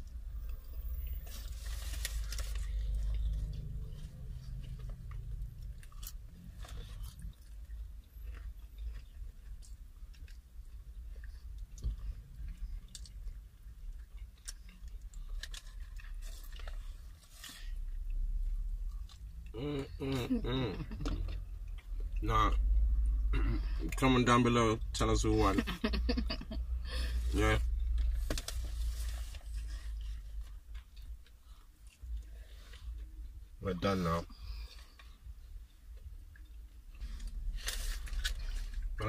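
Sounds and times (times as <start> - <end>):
chewing crispy fried chicken: 0.0 - 24.3
steady low rumble: 0.0 - 39.0.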